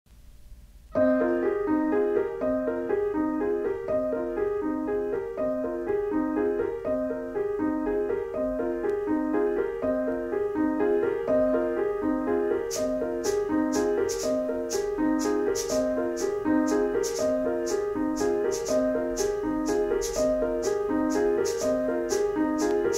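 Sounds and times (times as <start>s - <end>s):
minimalist piano music: 0.9s - 22.9s
short high hissing strokes: 12.7s - 22.9s.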